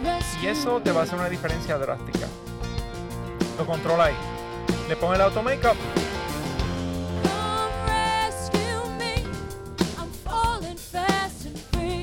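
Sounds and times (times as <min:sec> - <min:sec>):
person singing with vibrato: 0:00.0 - 0:00.9, 0:07.2 - 0:12.0
band playing: 0:00.0 - 0:10.6.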